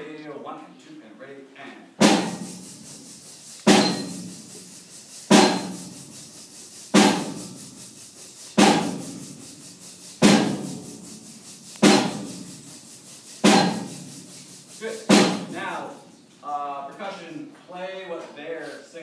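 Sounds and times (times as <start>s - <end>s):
drum hits ringing: 2.0s - 2.6s, 3.6s - 4.5s, 5.3s - 6.0s, 8.6s - 9.2s, 10.2s - 10.8s, 11.8s - 12.5s, 13.4s - 14.1s, 15.0s - 15.8s.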